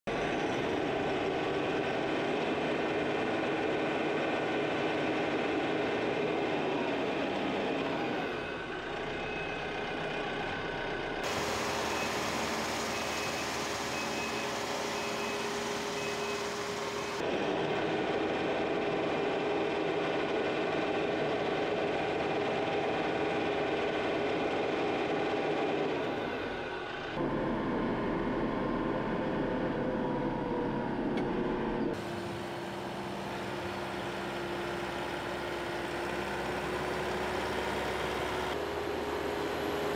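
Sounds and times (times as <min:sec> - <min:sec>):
tractor engine running: 0:08.6 - 0:39.9.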